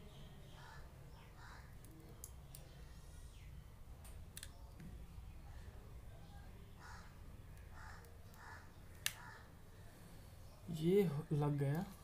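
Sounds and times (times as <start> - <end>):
small plastic clicks: 4.0 - 4.9.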